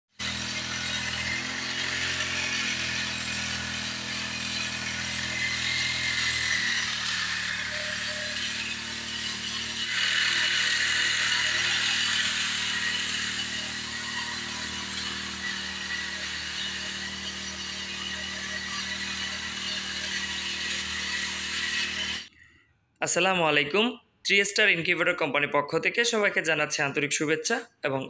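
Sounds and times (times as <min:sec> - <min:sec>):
small engine running steadily: 0:00.1 - 0:22.3.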